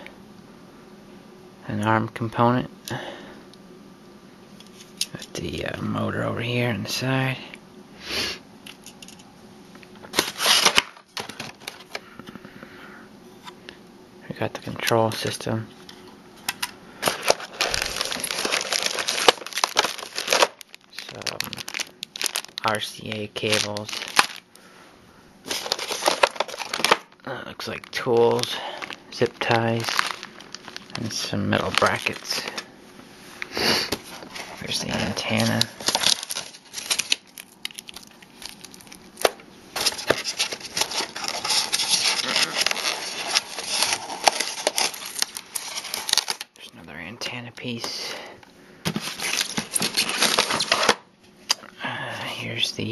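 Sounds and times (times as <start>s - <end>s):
plastic packaging crinkling: 10.0s - 12.1s, 17.0s - 24.6s, 25.4s - 32.7s, 33.9s - 46.6s, 48.9s - 51.0s.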